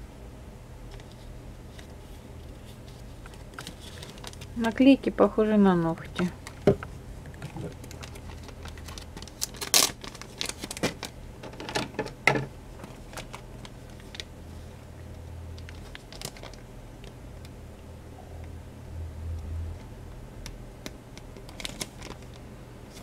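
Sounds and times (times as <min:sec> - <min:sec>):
plastic packaging crinkling: 0:00.9 - 0:05.0, 0:06.0 - 0:12.2, 0:12.8 - 0:14.8, 0:15.4 - 0:17.2, 0:21.3 - 0:23.0.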